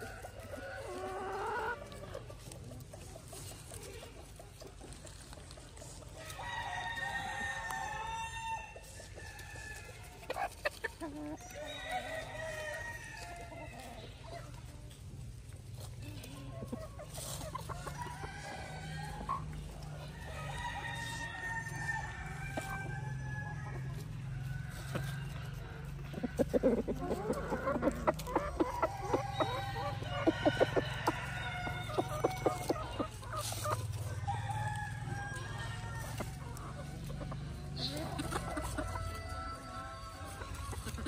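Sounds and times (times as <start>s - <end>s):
chickens clucking: 0.0s - 41.0s
rooster crowing: 20.3s - 26.5s, 28.6s - 32.8s, 34.2s - 36.5s, 38.6s - 40.6s.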